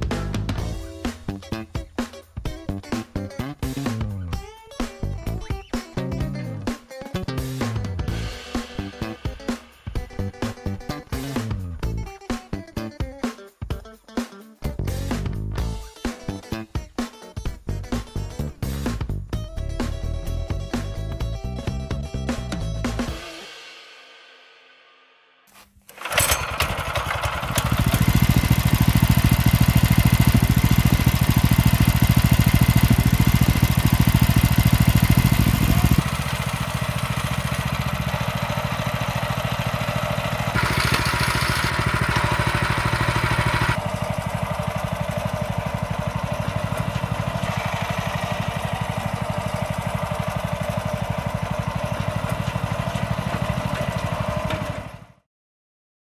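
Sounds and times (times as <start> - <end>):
petrol engine running: 25.9 - 55.2.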